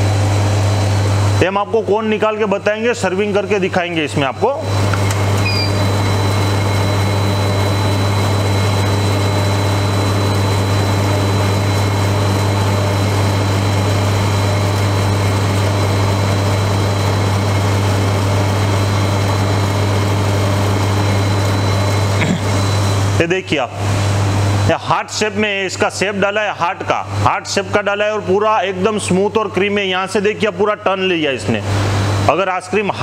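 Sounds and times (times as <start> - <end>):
ice cream machine humming: 0.0 - 33.0
faint high whine: 4.3 - 14.8.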